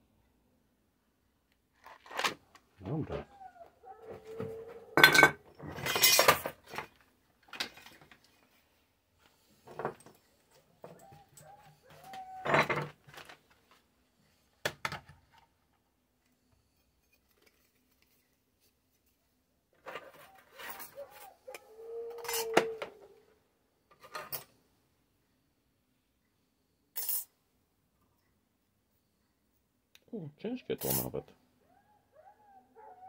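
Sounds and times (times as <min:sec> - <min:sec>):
metal parts clattering on workbench: 0:05.0 - 0:06.9, 0:12.4 - 0:13.3.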